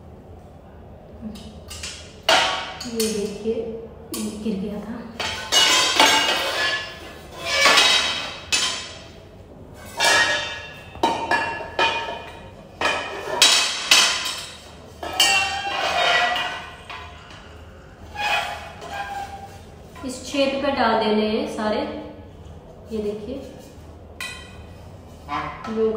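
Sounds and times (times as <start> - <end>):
metal tubes knocking and clinking: 10.0 - 17.4.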